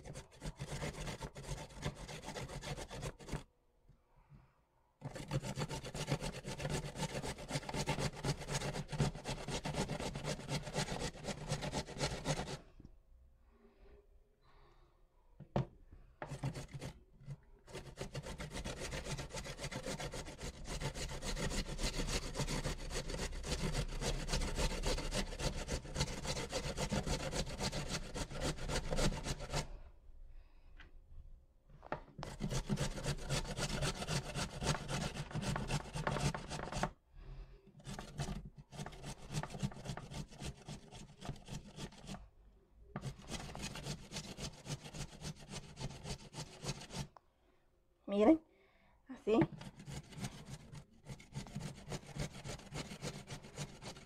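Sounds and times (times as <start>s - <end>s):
carrot grated on metal grater: 5.0s - 12.6s, 16.2s - 29.8s, 32.2s - 36.9s, 37.8s - 42.2s, 43.0s - 47.1s, 49.4s - 54.0s.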